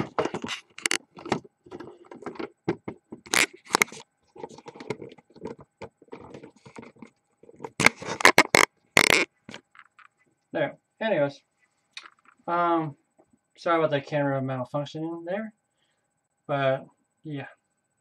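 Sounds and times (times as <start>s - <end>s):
camera handling knocks and scrapes: 0.0s - 9.8s.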